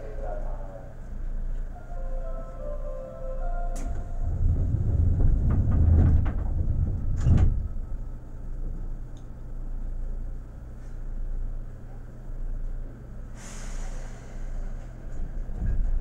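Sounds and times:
low train rumble: 0.0s - 16.0s
train doors rattling: 3.3s - 9.8s, 13.4s - 16.0s
train doors thudding shut: 3.4s - 8.3s, 13.5s - 16.0s.

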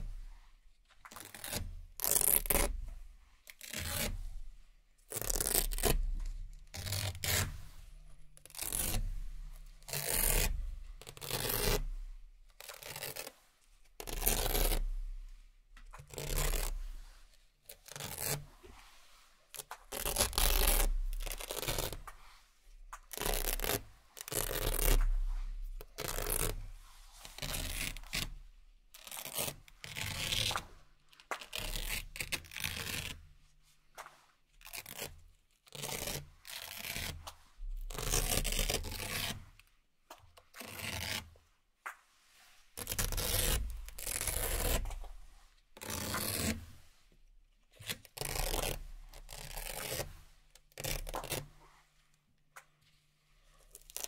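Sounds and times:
velcro ties ripping: 1.1s - 2.8s, 5.1s - 7.6s, 12.6s - 13.3s, 14.0s - 14.9s, 19.5s - 22.2s, 22.9s - 25.2s, 25.8s - 26.7s, 27.3s - 33.2s, 34.0s - 39.7s, 42.8s - 45.2s, 47.8s - 51.5s, 53.6s - 54.0s.

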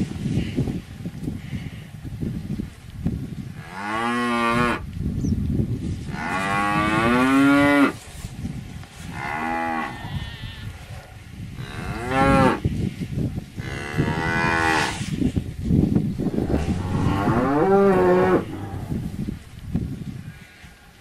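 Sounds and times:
cattle mooing: 16.3s - 19.2s.

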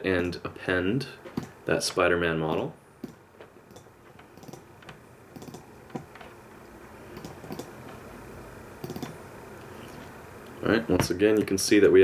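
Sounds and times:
mouse and keyboard clicking: 3.0s - 4.6s, 5.4s - 6.1s, 7.1s - 7.7s, 8.8s - 9.2s.

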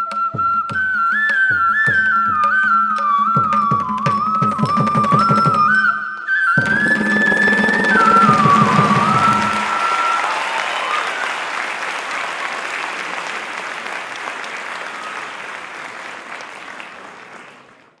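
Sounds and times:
held music note: 6.6s - 9.8s
audience applauding: 6.6s - 18.0s.

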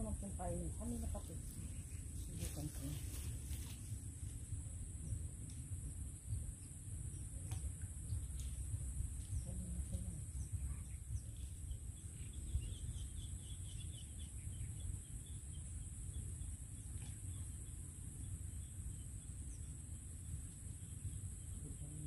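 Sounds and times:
high insect drone: 0.0s - 22.0s
wind rumble on microphone: 0.0s - 22.0s
bird chirping: 8.0s - 22.0s.

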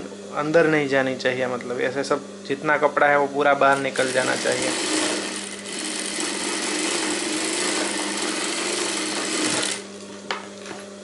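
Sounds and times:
sewing machine running: 3.7s - 10.0s.

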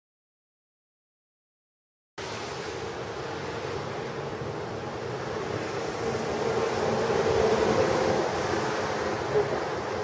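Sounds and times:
wind and rain rushing: 2.2s - 10.0s.

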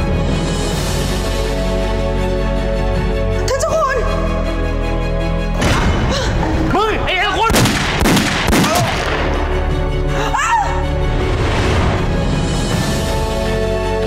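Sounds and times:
tense drama music: 0.0s - 14.0s
sharp bangs: 7.4s - 9.4s
woman screaming: 10.2s - 10.9s.

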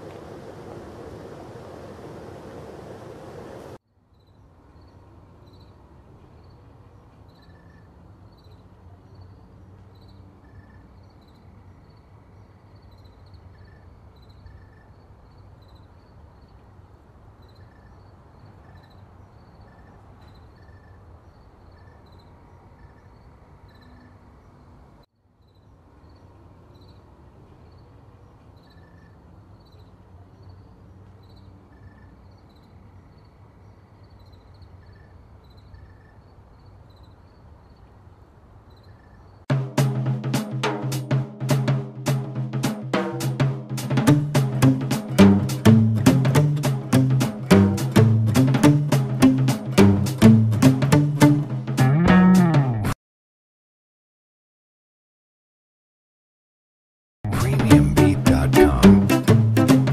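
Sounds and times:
insects chirping: 0.0s - 5.8s, 6.4s - 24.8s, 25.4s - 39.4s.

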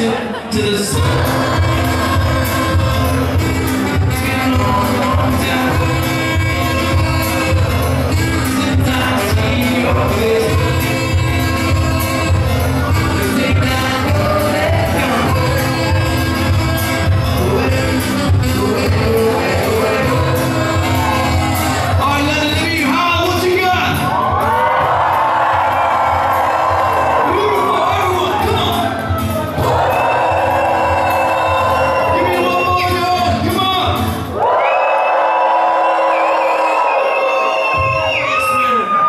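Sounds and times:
person singing: 0.0s - 23.1s
live folk-pop band: 0.0s - 34.6s, 35.5s - 39.0s
saxophone: 0.9s - 22.5s
steady drum beat: 0.9s - 34.2s.

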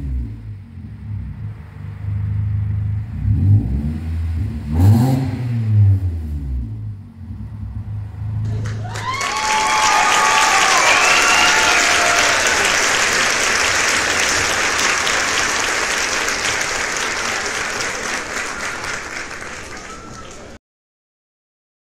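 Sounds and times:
crowd applause: 8.4s - 20.6s
crowd cheering: 8.4s - 20.6s.

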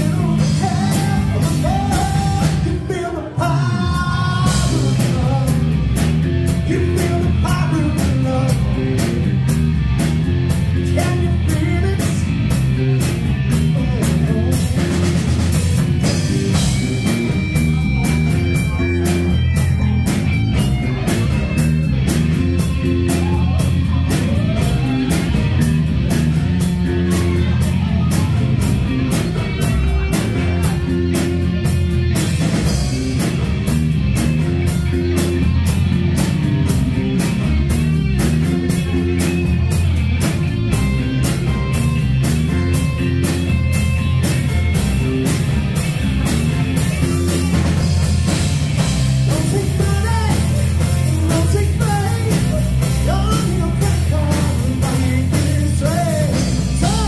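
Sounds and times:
man singing into microphone: 0.0s - 5.7s, 6.7s - 9.2s, 10.9s - 12.3s, 49.3s - 57.0s
drum kit beat: 0.0s - 57.0s
electric guitars: 0.0s - 57.0s.

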